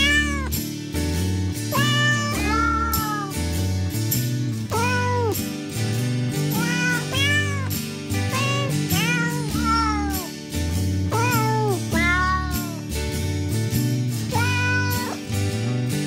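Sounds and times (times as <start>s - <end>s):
cat meows melody: 0.0s - 0.6s, 1.7s - 3.6s, 4.6s - 5.5s, 6.5s - 10.4s, 11.1s - 13.0s, 14.3s - 15.3s.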